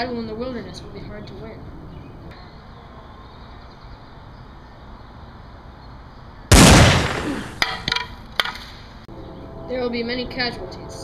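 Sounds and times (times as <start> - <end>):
gunshot blast: 6.5 - 7.8.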